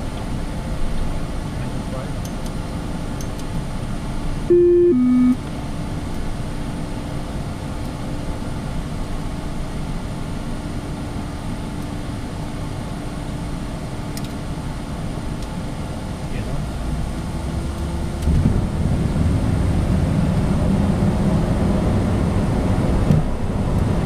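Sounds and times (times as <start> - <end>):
two-note falling chime: 4.5 - 5.4
jet cockpit engine drone: 4.5 - 5.5.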